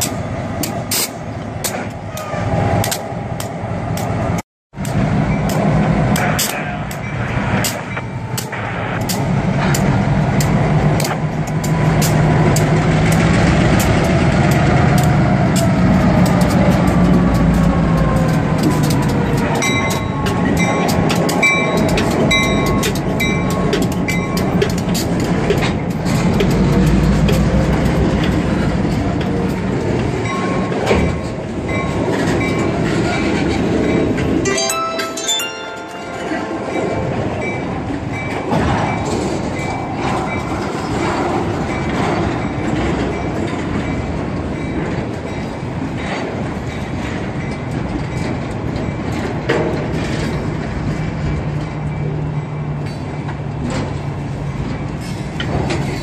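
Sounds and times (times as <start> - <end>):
train wheels clicking over rail joints: 0.0 - 34.5, 35.6 - 56.0
diesel locomotives rumbling: 0.0 - 56.0
crossing bell dinging: 19.1 - 26.8, 30.1 - 32.8, 33.7 - 46.0.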